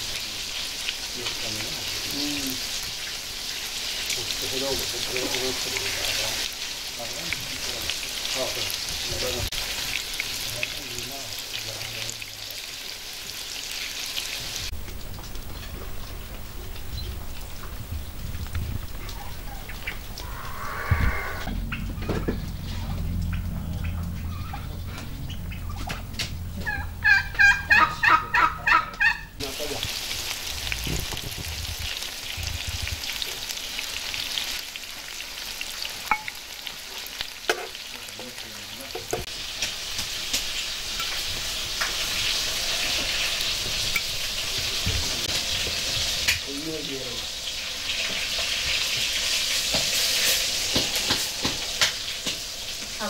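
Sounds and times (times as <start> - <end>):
food sizzling in hot oil: 0.0 - 21.8, 29.4 - 53.0
poultry calling: 19.0 - 29.4.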